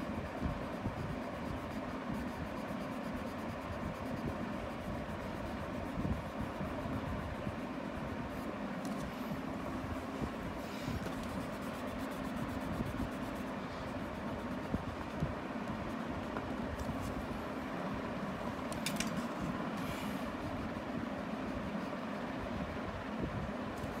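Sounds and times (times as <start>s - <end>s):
faint hum: 0.0s - 24.0s
low rumbling background noise: 0.0s - 24.0s
rubbing and scratching on paper: 0.1s - 17.5s, 18.4s - 22.2s.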